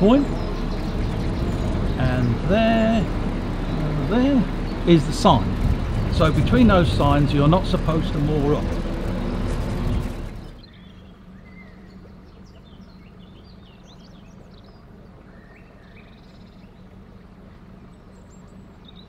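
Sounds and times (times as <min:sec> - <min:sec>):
birds chirping and singing: 0:00.0 - 0:19.0
boat engine humming: 0:00.0 - 0:19.0
loud rushing noise: 0:00.7 - 0:10.6.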